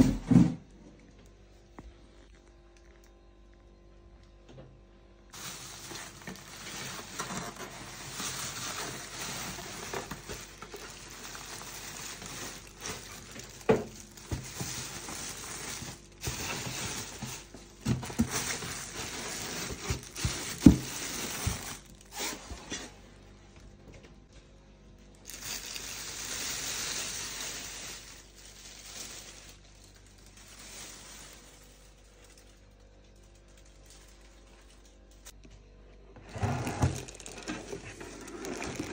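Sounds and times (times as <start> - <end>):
plastic bag crinkling: 5.3 - 22.4, 25.0 - 35.4, 36.7 - 38.9.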